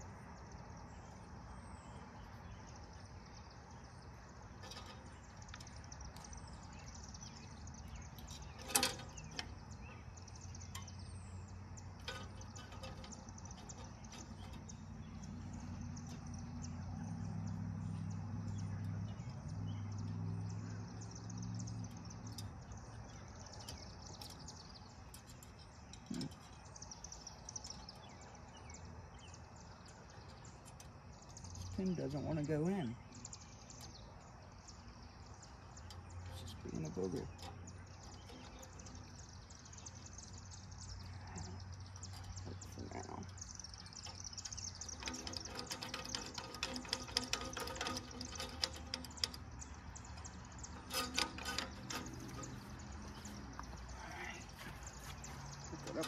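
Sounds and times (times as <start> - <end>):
birds chirping: 0.0 - 56.0
low droning hum: 0.8 - 56.0
sharp metal clicks: 4.4 - 32.3, 33.1 - 54.0.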